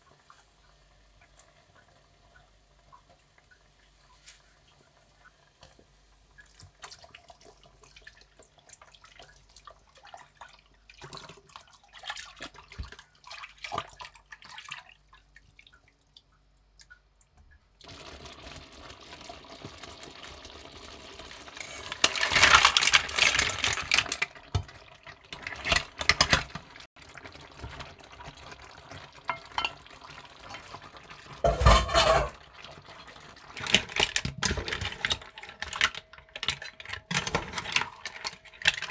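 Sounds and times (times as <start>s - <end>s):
sauce bubbling in a frying pan: 0.0s - 31.6s, 32.3s - 36.2s
spatula scraping a pan: 21.6s - 22.5s, 31.4s - 32.4s.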